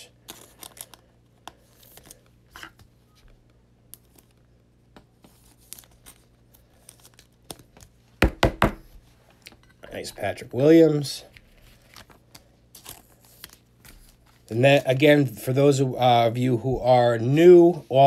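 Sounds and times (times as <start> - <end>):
plastic card sleeve crinkling: 0.2 - 8.1, 11.3 - 15.4
trading cards rustling and clicking: 0.2 - 8.2, 11.2 - 15.4.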